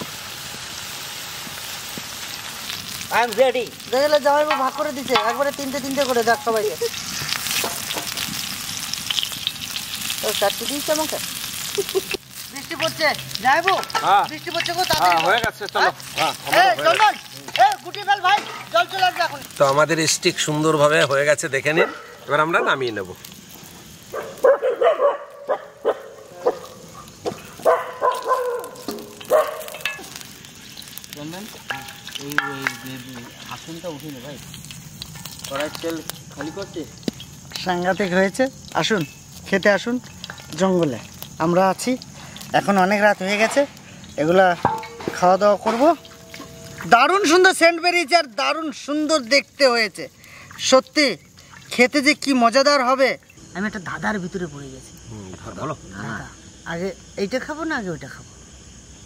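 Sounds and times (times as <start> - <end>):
meat sizzling in oil: 0.0 - 24.6, 25.2 - 59.0
dog barking: 21.7 - 22.8, 24.1 - 29.8.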